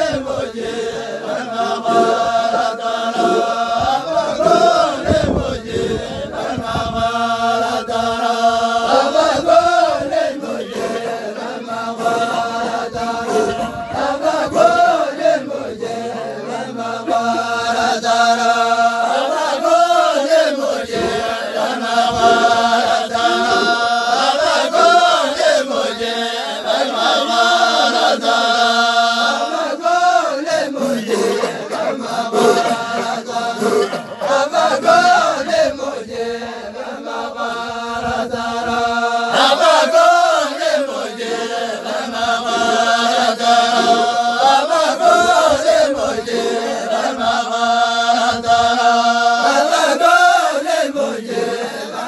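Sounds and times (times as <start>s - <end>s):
group chanting in unison: 0.0s - 52.0s.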